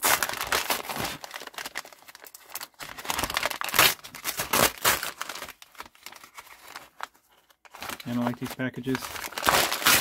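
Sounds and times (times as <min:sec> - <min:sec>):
paper mailer tearing: 0:00.0 - 0:01.7, 0:02.9 - 0:06.3, 0:07.9 - 0:10.0.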